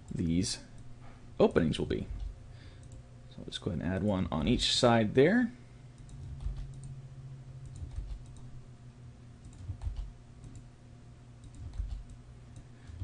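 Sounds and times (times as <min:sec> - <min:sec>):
faint steady hum: 0:00.0 - 0:13.0
keyboard keystrokes: 0:06.0 - 0:06.9, 0:07.7 - 0:08.5, 0:09.4 - 0:10.7, 0:11.4 - 0:12.2.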